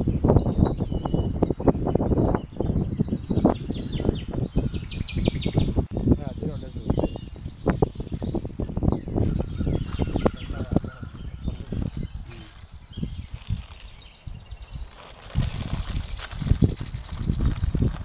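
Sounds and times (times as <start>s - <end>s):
birds chirping: 0.0s - 18.0s
baking paper crinkling: 14.6s - 18.0s.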